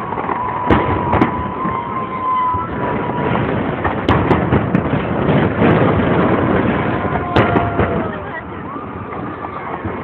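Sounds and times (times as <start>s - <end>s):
thin firework whistle: 0.0s - 3.6s
fireworks bangs: 0.0s - 10.0s
steady background noise: 0.0s - 10.0s.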